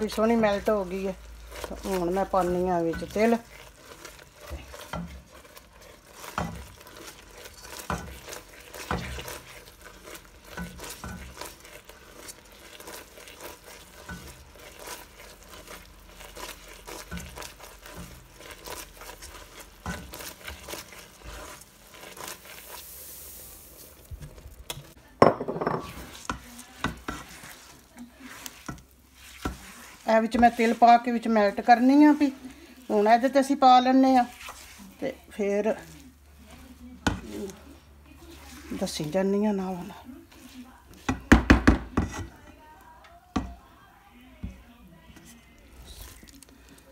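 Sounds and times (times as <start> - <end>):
spatula scraping a pot: 0.0 - 25.0, 25.6 - 42.8
syrup sizzling: 0.0 - 46.9
seeds bursting into hot syrup: 10.8 - 25.0.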